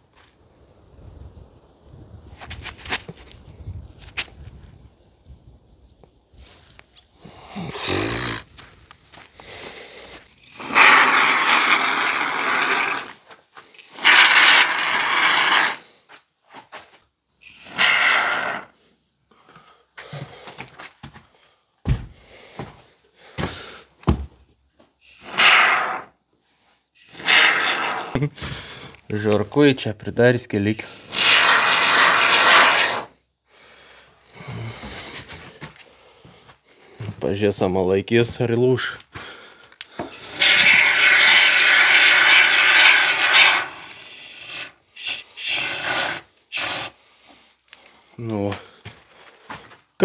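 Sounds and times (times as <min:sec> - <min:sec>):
foam gun hissing: 0:13.9 - 0:15.8, 0:25.0 - 0:26.1, 0:31.2 - 0:33.1, 0:40.1 - 0:47.0.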